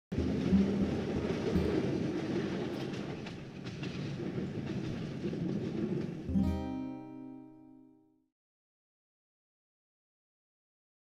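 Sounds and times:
train rumbling: 0.1s - 7.5s
acoustic guitar chord ringing: 0.2s - 3.2s, 6.3s - 8.2s.

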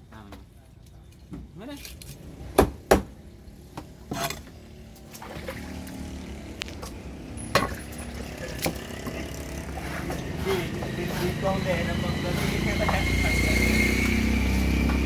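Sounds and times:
cleaver chopping on wooden block: 2.6s - 3.1s.

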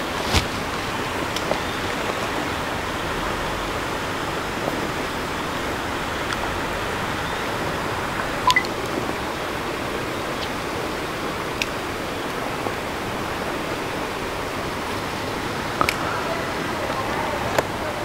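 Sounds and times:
rushing outdoor background noise: 0.0s - 18.0s
double blip of tones: 8.4s - 8.7s.

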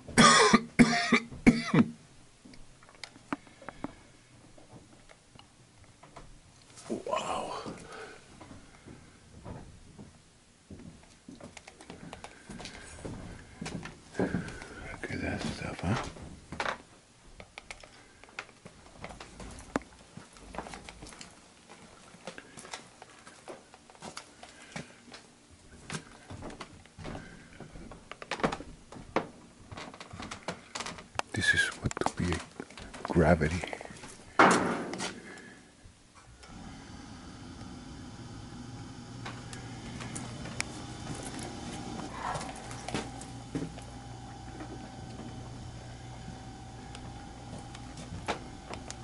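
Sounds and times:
low electrical hum: 0.0s - 49.0s
footsteps: 6.1s - 16.6s, 18.6s - 35.4s, 39.2s - 45.6s.

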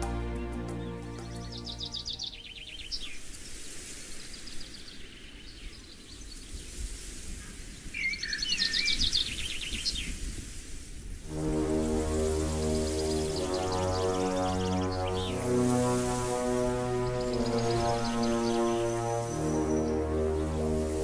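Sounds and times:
whistled bird notes: 0.0s - 3.3s, 8.0s - 10.1s
songbirds singing: 0.0s - 3.5s, 7.8s - 10.2s, 12.7s - 21.0s.

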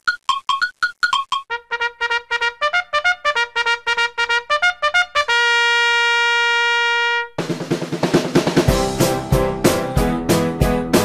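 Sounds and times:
drums: 7.4s - 11.0s
intro music: 7.4s - 11.0s.

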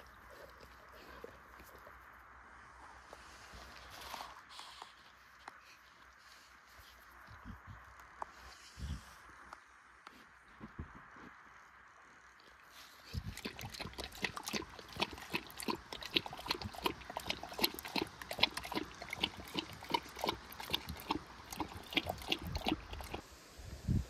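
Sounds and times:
dog chewing food: 13.0s - 23.2s.

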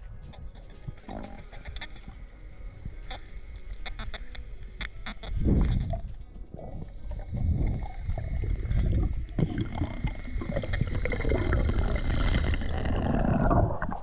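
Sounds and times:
faint clicks: 2.9s - 14.0s
underwater churning water: 3.0s - 14.0s.

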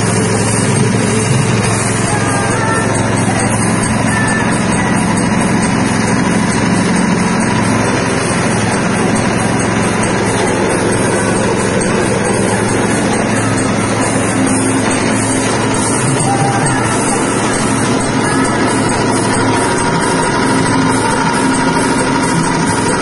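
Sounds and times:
machine drone: 0.0s - 23.0s.

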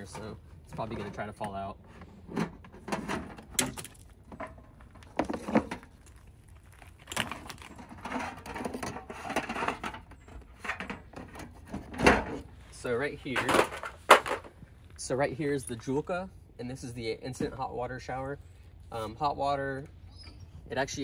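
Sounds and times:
rubber hoses rustling and scraping: 0.0s - 15.1s.

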